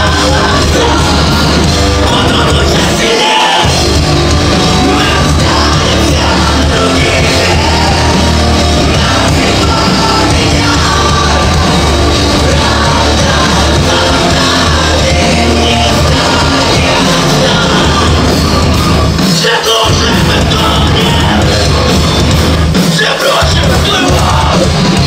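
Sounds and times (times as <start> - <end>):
singer shouting: 0.0 - 3.8, 19.3 - 21.6, 22.9 - 24.8
metal band playing live: 0.0 - 25.0.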